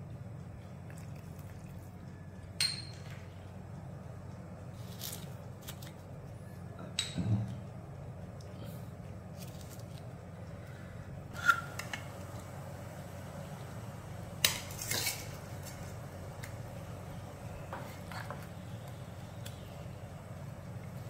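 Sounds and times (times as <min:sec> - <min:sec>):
utensils clinking on steel pot: 0:02.6 - 0:03.2.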